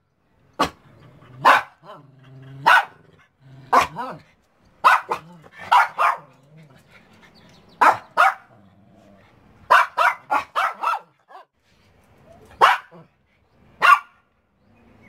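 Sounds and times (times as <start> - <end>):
small dogs barking: 0.6 - 6.8, 7.7 - 8.7, 9.6 - 11.5, 12.4 - 13.1, 13.8 - 14.2.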